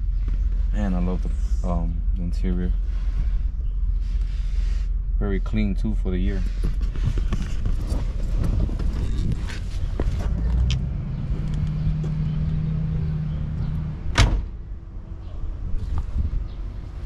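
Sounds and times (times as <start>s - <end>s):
car door slamming: 14.1s - 14.6s.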